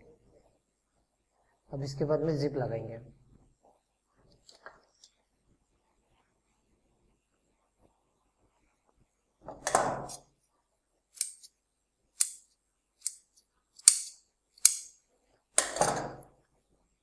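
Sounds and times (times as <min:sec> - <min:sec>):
scissors snipping: 0:11.2 - 0:11.5, 0:12.2 - 0:14.9.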